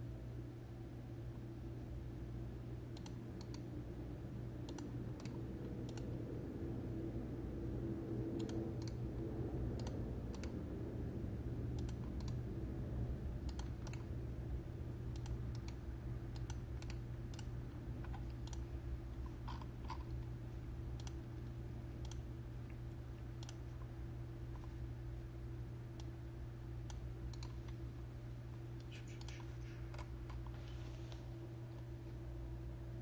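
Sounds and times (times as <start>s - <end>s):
steady low hum: 0.0s - 33.0s
mouse and keyboard clicking: 8.4s - 9.0s, 11.7s - 12.4s, 13.4s - 14.1s, 26.9s - 27.8s, 28.8s - 30.5s.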